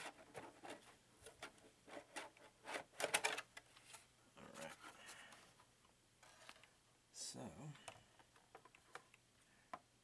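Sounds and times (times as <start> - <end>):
plastic shell clicks and rustles: 0.0 - 4.0, 7.8 - 9.9.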